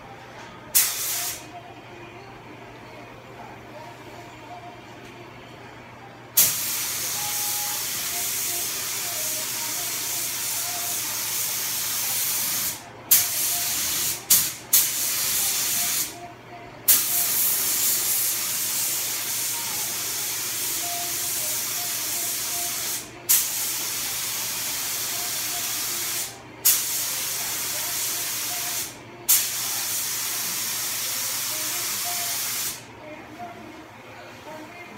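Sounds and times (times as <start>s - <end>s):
sharp burst of air: 0.8s - 1.4s, 6.4s - 8.5s.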